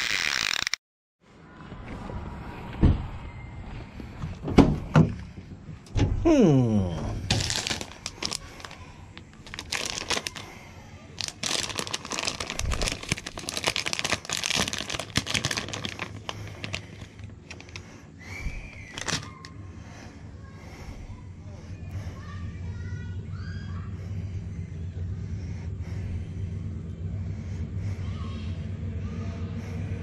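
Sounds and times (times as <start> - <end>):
plastic package crinkling: 7.3 - 10.6, 11.2 - 17.8, 18.9 - 19.4.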